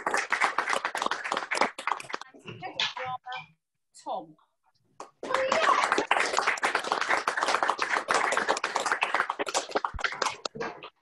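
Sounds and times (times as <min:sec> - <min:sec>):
small group applauding: 0:00.0 - 0:02.4, 0:05.0 - 0:11.0.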